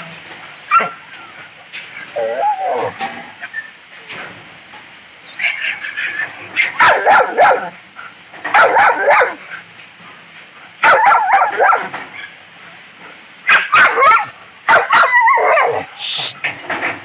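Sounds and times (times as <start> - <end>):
dog barking and yipping: 0.7 - 1.0, 5.4 - 7.8, 8.4 - 9.4, 10.8 - 12.4, 13.5 - 16.3.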